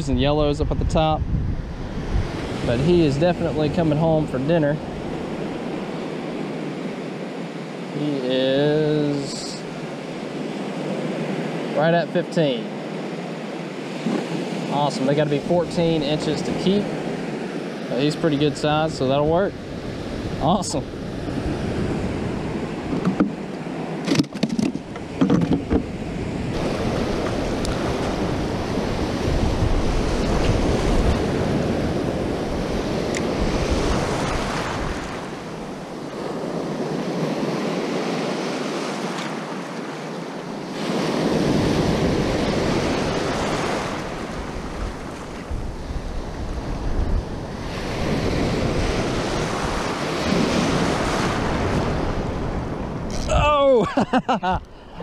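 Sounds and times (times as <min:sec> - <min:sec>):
wind buffeting microphone: 0:00.0 - 0:06.8, 0:13.7 - 0:38.5, 0:40.8 - 0:55.0
surf waves breaking: 0:00.0 - 0:55.0
sharp clicks and knocks: 0:22.9 - 0:23.3, 0:24.0 - 0:25.9.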